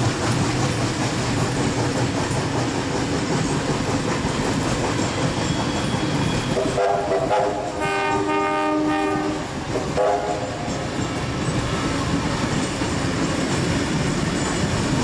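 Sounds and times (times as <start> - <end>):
train carriages rumbling past: 0.0 - 15.0
train horn blasts: 6.6 - 10.7.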